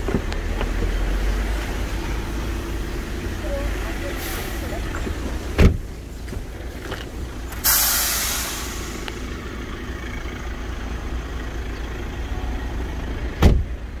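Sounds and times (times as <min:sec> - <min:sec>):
low outdoor rumble: 0:00.0 - 0:14.0
sudden loud hiss: 0:07.6 - 0:09.3
dull thump: 0:13.4 - 0:13.7.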